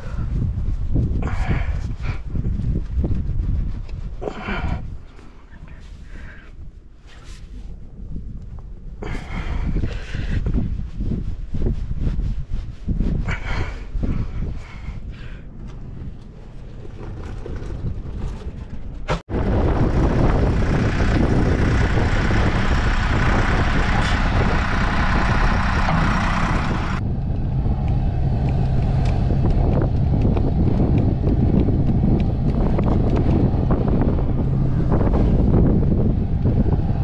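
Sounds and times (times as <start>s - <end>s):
wind buffeting microphone: 0.0s - 37.0s
engine humming: 14.6s - 37.0s.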